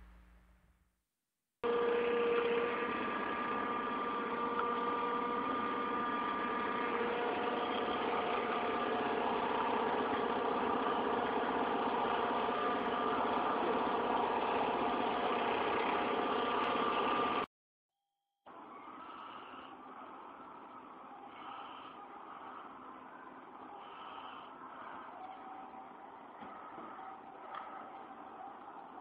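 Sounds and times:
forklift engine running: 0:01.6 - 0:17.5.

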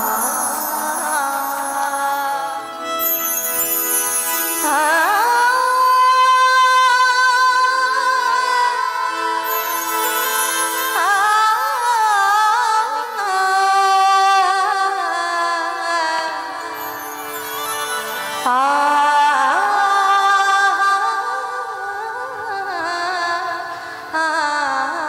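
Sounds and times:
sustained accompaniment: 0:00.0 - 0:12.7, 0:16.4 - 0:21.8
woman singing devotional song: 0:00.0 - 0:25.0.

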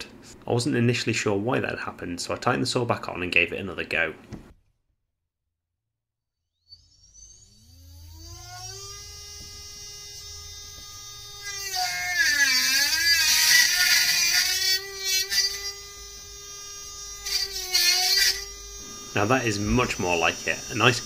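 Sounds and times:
circular saw whining: 0:06.5 - 0:21.0
saw cutting into metal chassis: 0:06.7 - 0:21.0.

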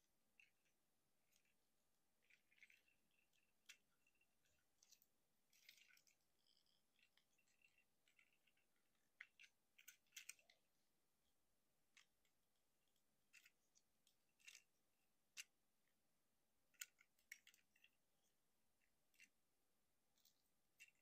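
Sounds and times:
plastic toy parts clicking: 0:09.2 - 0:10.6, 0:13.3 - 0:15.5, 0:16.7 - 0:17.9, 0:19.1 - 0:19.4, 0:20.2 - 0:21.0.

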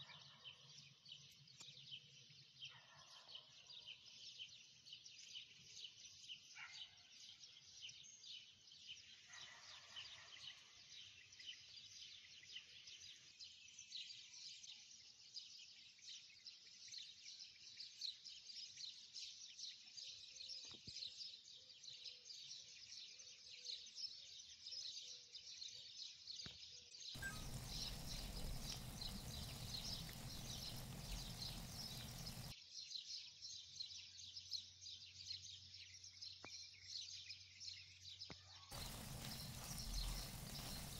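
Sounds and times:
sauce sizzling in a pan: 0:27.2 - 0:32.5, 0:38.7 - 0:40.9.

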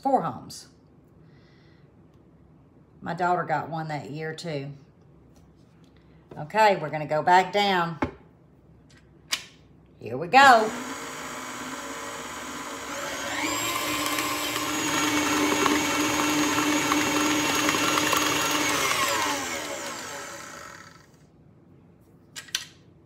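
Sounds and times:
stand mixer running: 0:10.7 - 0:21.1.

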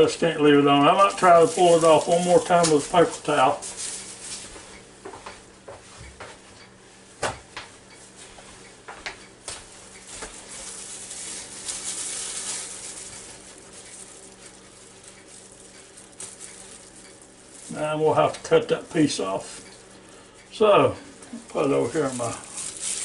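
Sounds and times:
paper towel rustling: 0:00.0 - 0:04.7, 0:09.7 - 0:23.0.

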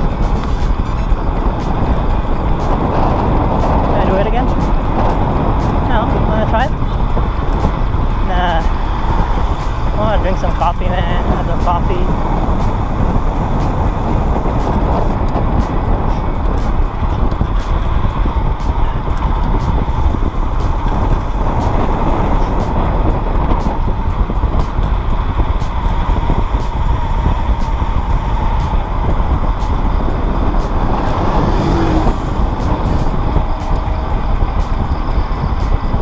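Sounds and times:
road noise: 0:00.0 - 0:36.0
wind buffeting microphone: 0:00.0 - 0:36.0.

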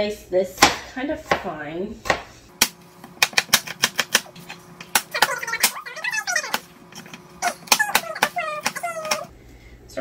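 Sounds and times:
knife chopping on cutting board: 0:00.6 - 0:05.4.

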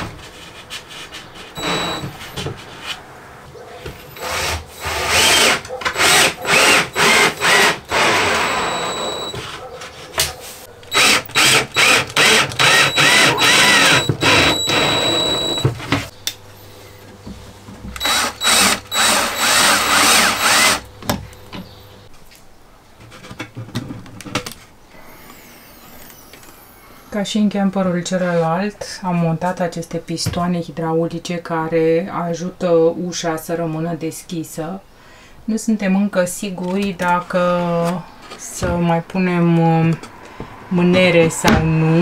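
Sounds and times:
cordless drill driving screws: 0:01.6 - 0:02.2, 0:04.2 - 0:09.6, 0:10.9 - 0:15.7, 0:18.0 - 0:20.9.

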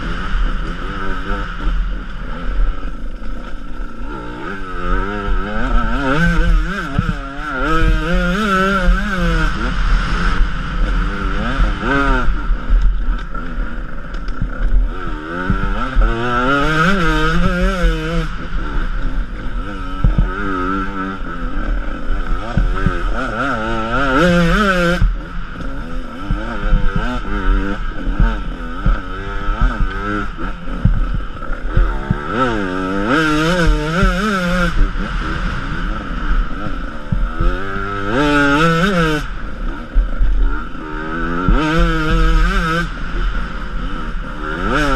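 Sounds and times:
dirt bike engine revving: 0:00.0 - 0:44.9
knocks from bumps: 0:20.0 - 0:20.3.

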